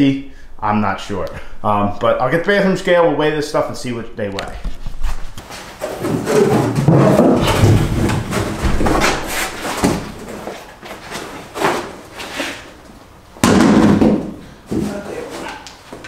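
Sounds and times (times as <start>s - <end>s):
panel scraping on floor: 5.4s - 12.7s.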